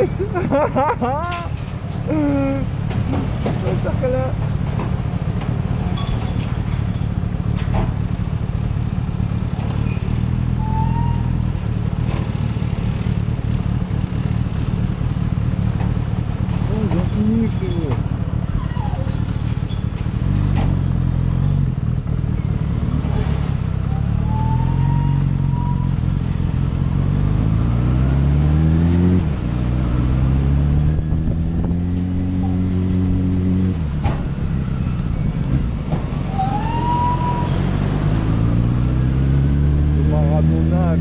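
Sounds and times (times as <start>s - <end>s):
motorcycle engine revving: 25.1s - 41.0s.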